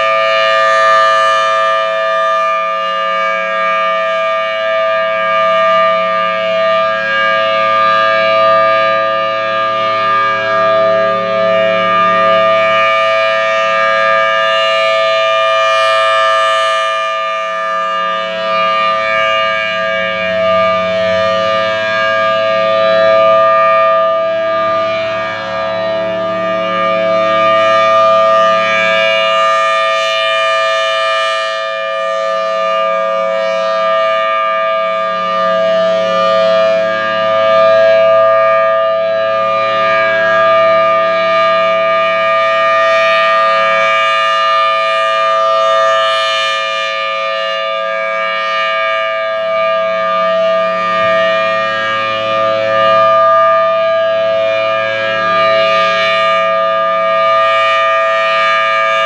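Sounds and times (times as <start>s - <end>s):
rotating warning siren: 0.0s - 59.0s.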